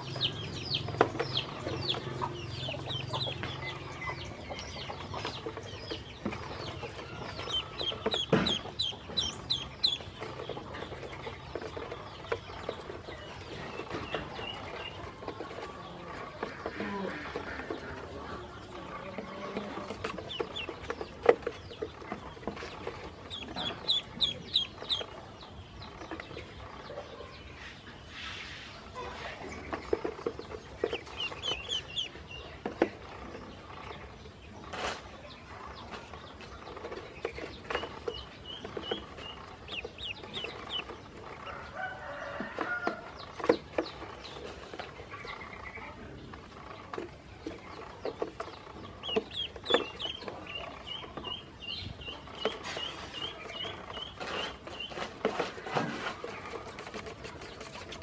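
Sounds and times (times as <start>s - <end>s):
ducklings peeping: 0.0s - 58.0s
bills pecking on plastic crate: 52.3s - 58.0s.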